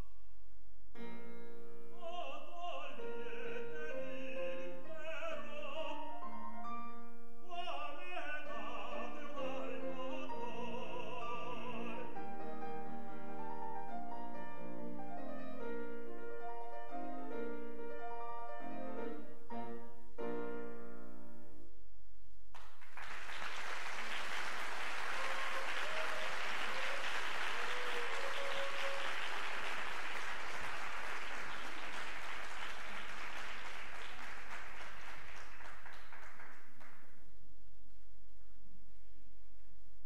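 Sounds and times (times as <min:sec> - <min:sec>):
grand piano chords: 0:01.0 - 0:21.9
audience applauding: 0:22.6 - 0:37.2.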